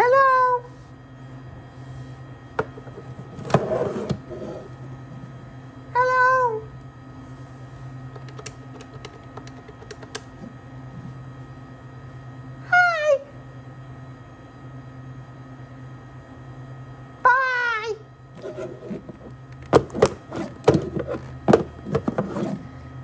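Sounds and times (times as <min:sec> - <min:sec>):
phone handset and buttons clattering: 0:08.2 - 0:10.3.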